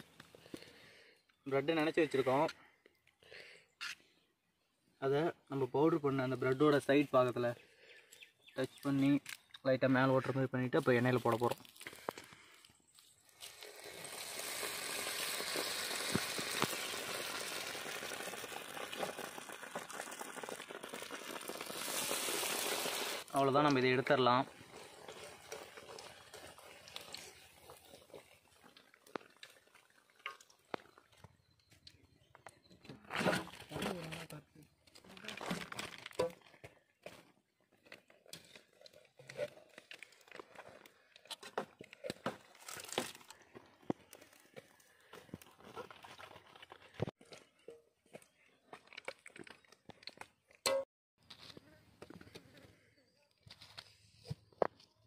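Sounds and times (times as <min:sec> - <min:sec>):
hot oil sizzling and crackling: 0:13.3 - 0:23.8, 0:24.5 - 0:29.8.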